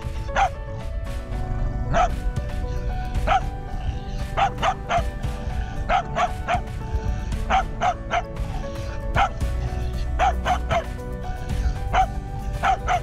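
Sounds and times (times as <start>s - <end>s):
background music: 0.0s - 13.0s
dog barking: 0.2s - 0.6s, 1.9s - 2.2s, 3.1s - 6.7s, 7.4s - 11.0s, 11.6s - 13.0s.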